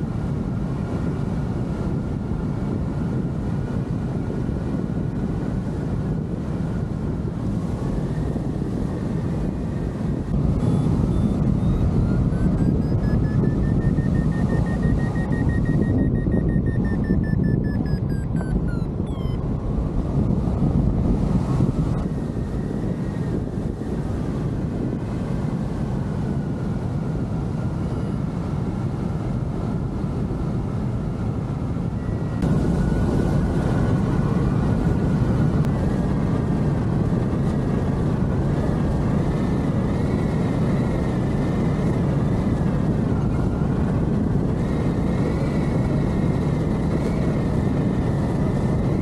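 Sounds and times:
wind rushing over microphone: 0:00.0 - 0:49.0
thin wavering whistle: 0:10.6 - 0:19.4.

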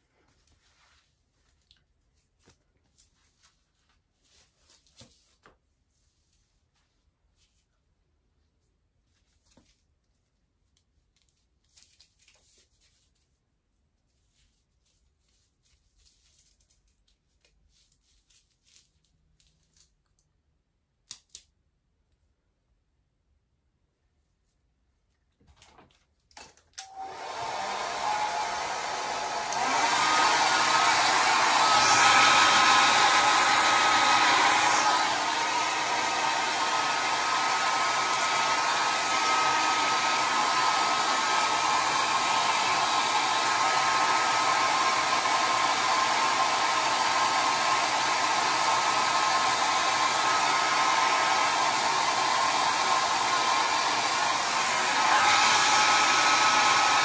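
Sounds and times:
hair dryer blowing with thin whine: 0:26.4 - 0:57.0.

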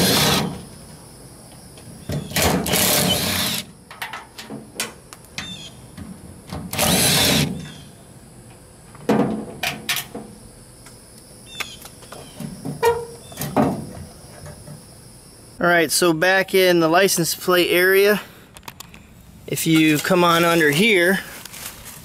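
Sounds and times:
cordless driver running: 0:06.7 - 0:07.5.

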